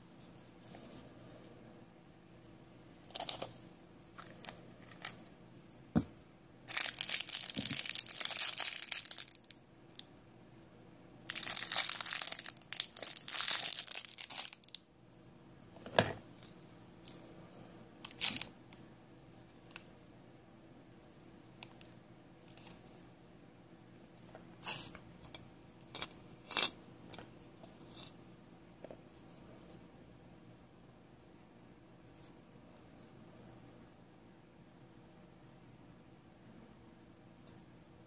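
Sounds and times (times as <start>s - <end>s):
plastic wrapper crinkling: 3.1s - 3.6s, 4.2s - 5.2s, 6.7s - 10.0s, 11.3s - 14.8s, 18.0s - 18.5s.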